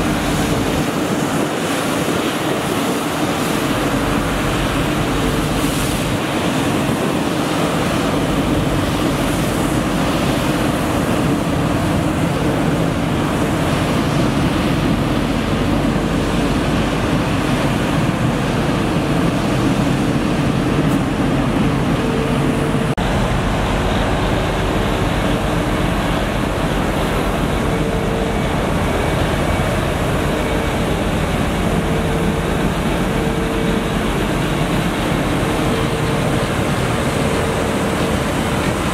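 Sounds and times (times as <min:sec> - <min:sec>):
street sweeper rushing din: 0:00.0 - 0:38.9
faint steady whine: 0:20.0 - 0:38.9.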